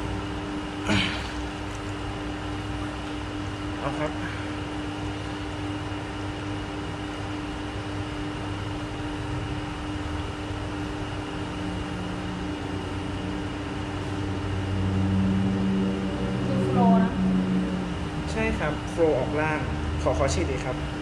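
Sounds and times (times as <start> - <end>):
motor hum: 0.0 - 21.0.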